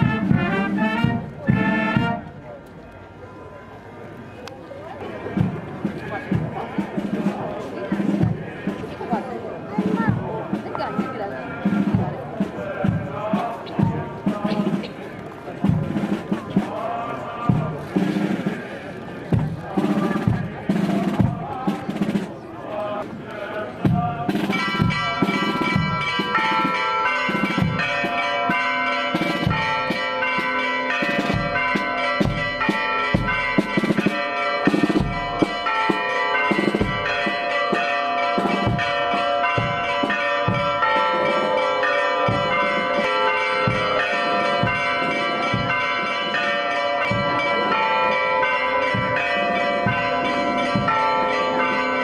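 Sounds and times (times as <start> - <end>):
church bells ringing: 9.2 - 13.0, 24.3 - 52.0.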